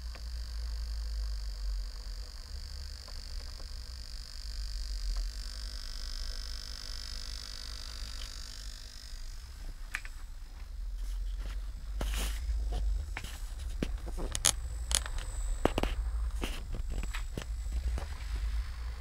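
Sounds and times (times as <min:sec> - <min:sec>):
high-pitched dimmer whine: 0:00.0 - 0:19.0
low mains hum: 0:00.0 - 0:19.0.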